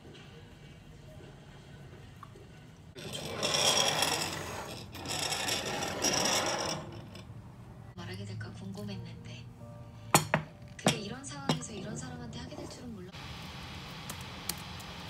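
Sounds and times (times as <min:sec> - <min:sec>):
rough scraping: 0:03.0 - 0:07.3.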